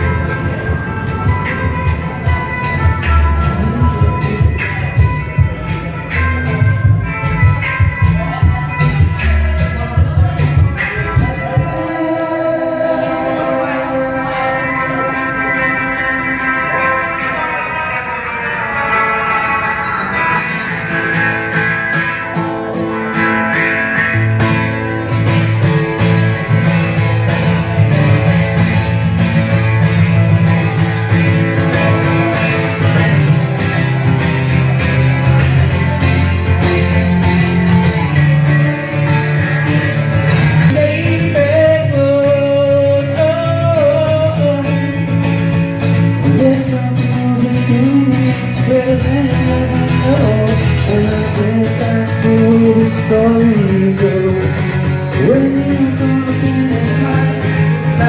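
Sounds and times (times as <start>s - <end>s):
acoustic guitar strumming: 0.0s - 58.0s
man singing: 1.3s - 20.6s, 40.5s - 58.0s.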